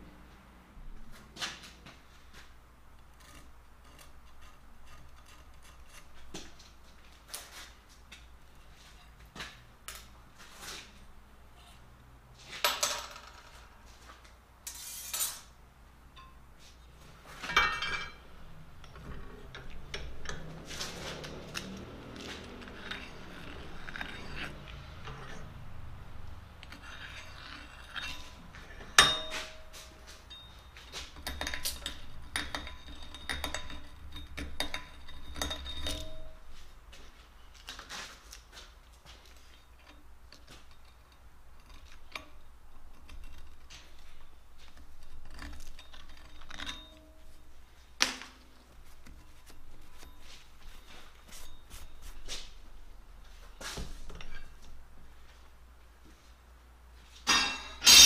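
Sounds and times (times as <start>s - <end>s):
metallic clinks and knocks: 12.6s - 13.8s, 16.1s - 36.7s, 39.2s - 54.8s, 57.2s - 58.0s
metal clatter: 16.2s - 36.6s, 39.4s - 52.6s, 57.2s - 58.0s
sharp metal clank: 28.9s - 30.6s, 57.3s - 58.0s.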